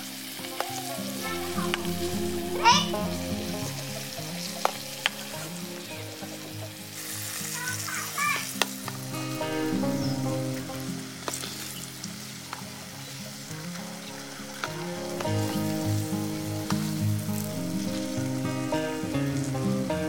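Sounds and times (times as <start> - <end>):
hot oil sizzling in a wok: 0.0 - 20.0.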